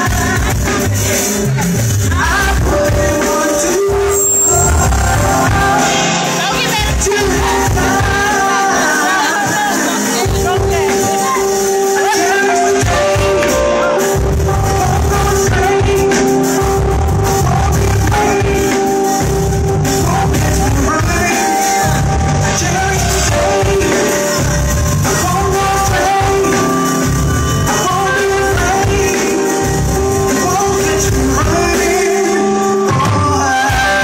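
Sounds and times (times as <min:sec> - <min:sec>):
woman singing: 0:00.0 - 0:14.1, 0:14.7 - 0:16.6
keyboards and drums: 0:00.0 - 0:34.0.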